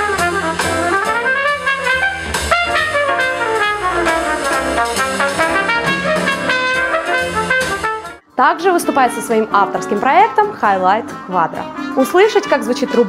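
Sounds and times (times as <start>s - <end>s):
double bass: 0.0s - 8.2s
drums: 0.0s - 8.2s
piano: 0.0s - 13.0s
trumpet playing quick notes: 0.2s - 8.2s.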